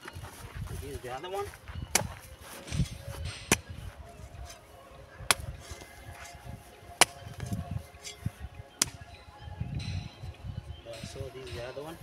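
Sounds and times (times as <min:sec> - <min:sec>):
soil scuffing: 0:00.0 - 0:08.9
garden hoe chopping soil: 0:01.9 - 0:02.1.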